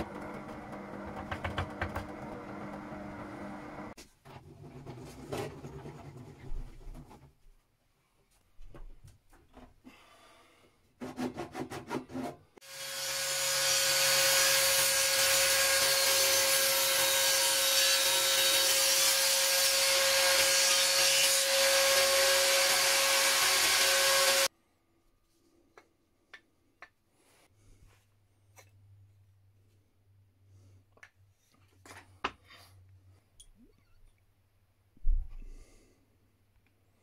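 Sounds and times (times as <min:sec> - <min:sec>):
table saw cutting wood: 0:00.0 - 0:04.0, 0:12.6 - 0:24.5.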